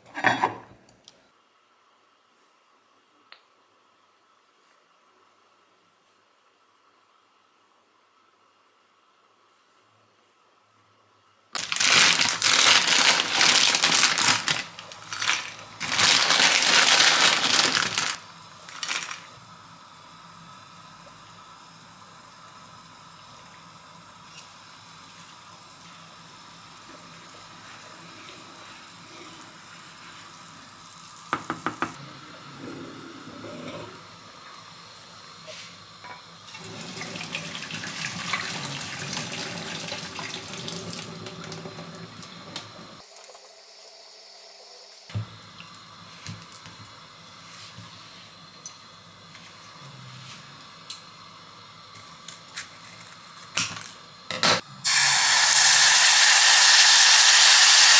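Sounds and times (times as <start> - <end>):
dry pasta pouring into pot: 11.6 - 19.3
water rushing into colander: 36.5 - 43.0, 54.8 - 57.9.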